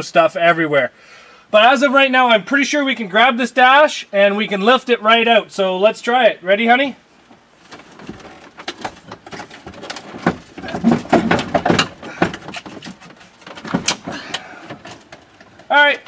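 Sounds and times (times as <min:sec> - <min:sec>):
plastic dashboard creaking and cracking: 0:07.3 - 0:15.8.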